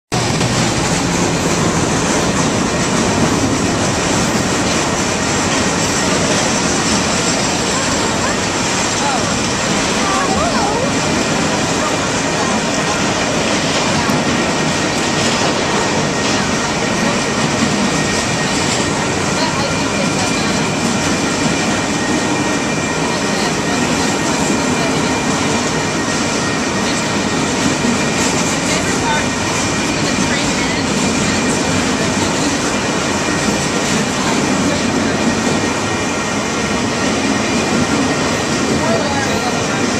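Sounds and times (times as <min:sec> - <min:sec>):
train wheels rumbling on rails: 0:00.1 - 0:39.9.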